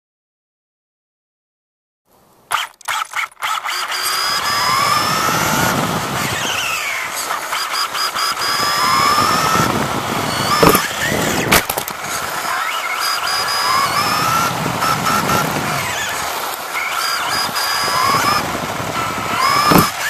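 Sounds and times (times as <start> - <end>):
electric motor whining: 2.5 - 20.0
tyres crunching on gravel: 4.3 - 20.0
sharp knocks: 10.5 - 12.0, 19.4 - 20.0.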